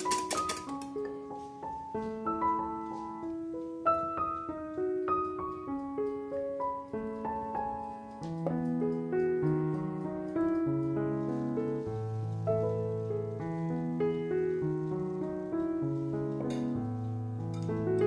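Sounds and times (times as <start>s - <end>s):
whisk clattering in glass bowl: 0.0s - 1.0s
piano music: 0.0s - 18.0s.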